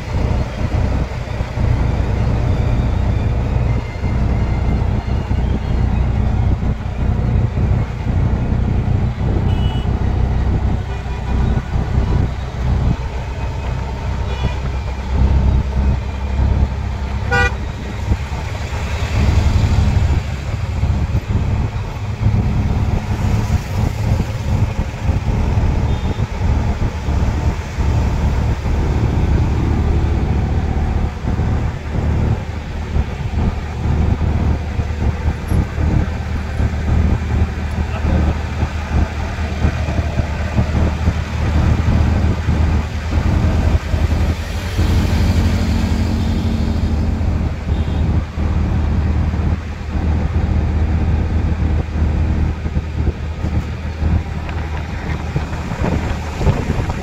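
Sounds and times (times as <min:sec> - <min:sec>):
auto-rickshaw engine running: 0:00.0 - 0:57.0
road noise: 0:00.0 - 0:57.0
vehicle horn toot: 0:09.5 - 0:09.9, 0:14.3 - 0:14.6, 0:17.2 - 0:17.7, 0:47.7 - 0:48.1.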